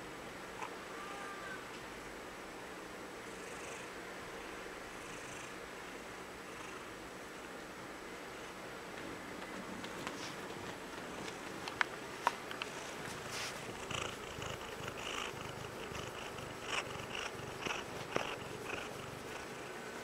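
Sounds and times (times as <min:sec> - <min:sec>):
rustling: 0:09.9 - 0:19.7
cat purring: 0:12.7 - 0:19.8.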